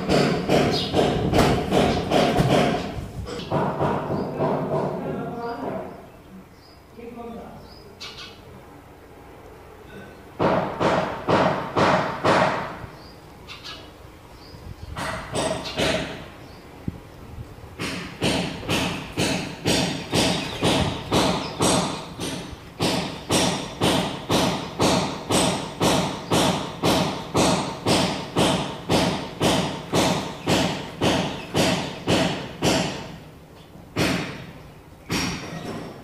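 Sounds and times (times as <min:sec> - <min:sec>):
loud regular thumping with ring: 0:00.0 - 0:03.0.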